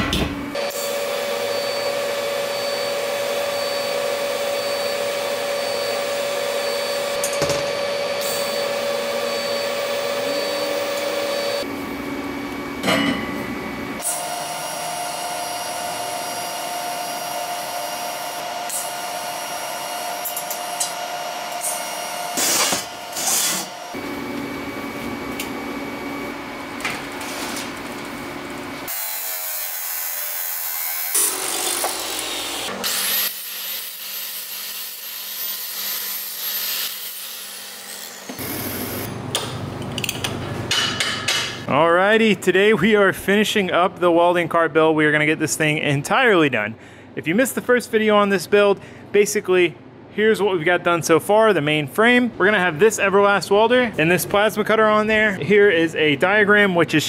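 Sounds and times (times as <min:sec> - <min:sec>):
electric arc welding buzz: 0:14.0 - 0:24.3, 0:28.8 - 0:39.1
chop saw cutting steel: 0:20.2 - 0:23.9, 0:28.9 - 0:39.0.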